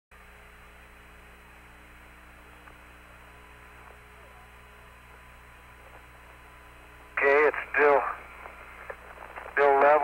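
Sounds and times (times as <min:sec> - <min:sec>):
radio hiss and hum: 0:01.2 - 0:10.0.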